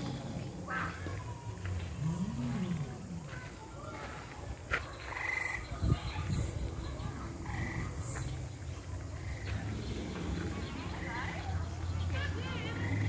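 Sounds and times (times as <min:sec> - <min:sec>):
dinosaur growling sound effect: 0:00.0 - 0:03.3, 0:09.5 - 0:11.1.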